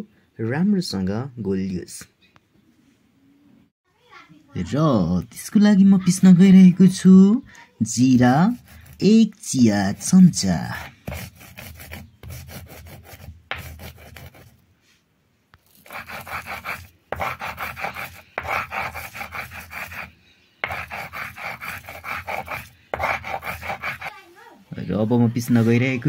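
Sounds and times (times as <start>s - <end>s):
stone scraping on stone: 15.6s - 24.2s.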